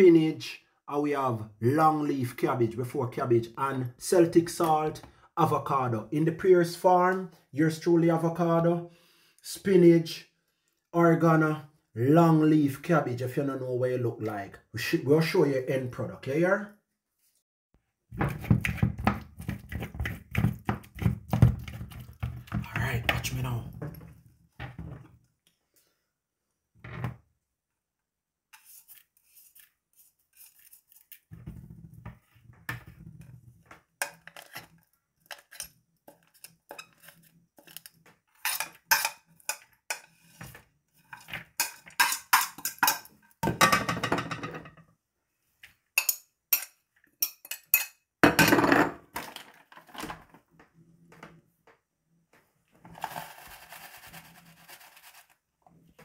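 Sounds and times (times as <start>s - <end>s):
fork scraping and clinking on plate: 35.3s - 40.4s, 41.1s - 43.1s.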